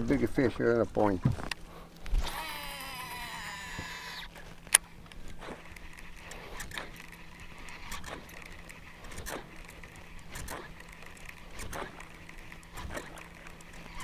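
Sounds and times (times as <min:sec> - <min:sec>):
fishing reel click: 0:02.2 - 0:14.0
soft swishing strokes: 0:05.2 - 0:14.0.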